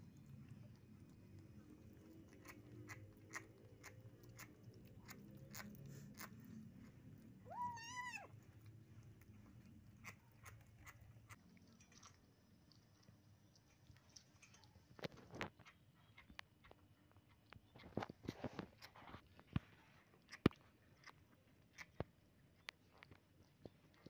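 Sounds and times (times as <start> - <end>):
kitten chewing wet clicks: 0.0 - 24.0
kitten meow: 7.4 - 8.3.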